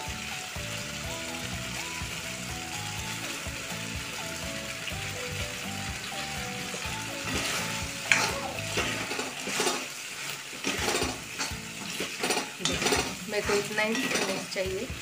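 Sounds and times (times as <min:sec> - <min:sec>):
food sizzling: 0:00.0 - 0:15.0
metal spatula scraping a wok: 0:07.2 - 0:14.6.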